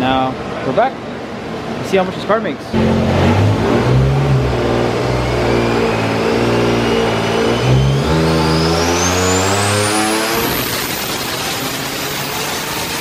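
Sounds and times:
car engine revving on dyno: 2.8s - 13.0s
rising turbo whine: 2.8s - 13.0s.

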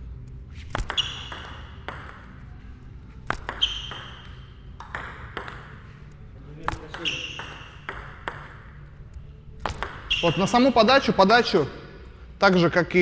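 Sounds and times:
ping pong ball clicking: 0.7s - 2.4s, 3.3s - 5.8s, 6.6s - 8.7s, 9.6s - 10.4s.

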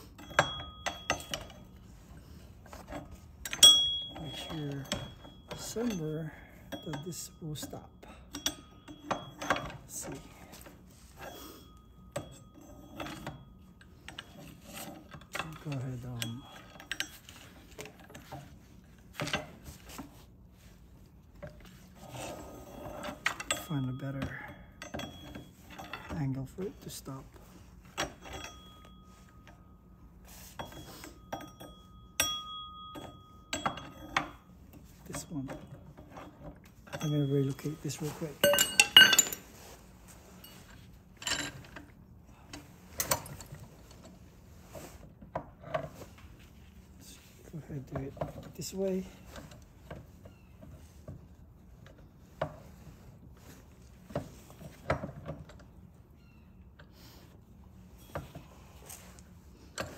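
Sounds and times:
metal clinks of hand tools: 0.0s - 18.5s, 21.4s - 27.2s, 27.9s - 39.5s.

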